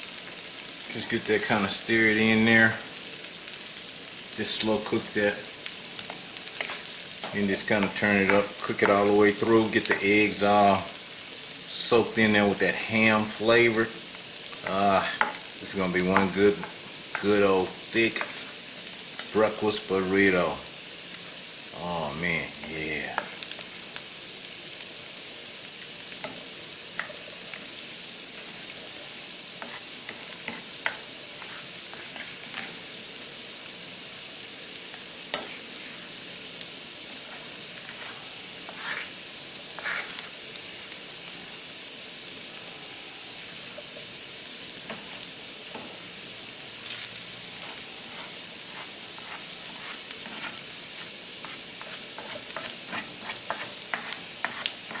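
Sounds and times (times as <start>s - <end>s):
food sizzling in a skillet: 0.0s - 55.0s
spatula scraping and tapping pan: 6.0s - 9.1s, 14.6s - 17.4s, 18.1s - 18.5s, 27.0s - 27.2s, 29.6s - 32.8s, 35.3s - 35.6s, 37.1s - 39.1s, 39.8s - 40.3s, 47.6s - 55.0s.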